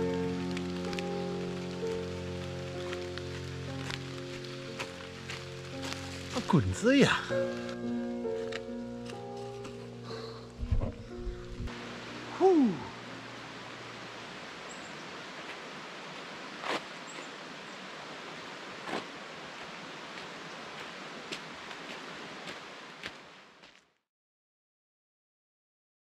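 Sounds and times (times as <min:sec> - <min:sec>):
outdoor background hiss: 0:00.0 - 0:24.0
footsteps on gravel: 0:00.2 - 0:11.7, 0:15.3 - 0:17.4, 0:18.8 - 0:23.9.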